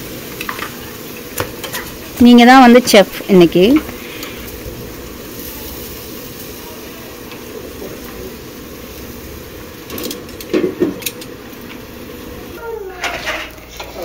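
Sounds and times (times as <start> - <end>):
steady mechanical hum: 0.0 - 14.0
murmur of voices: 4.8 - 8.8.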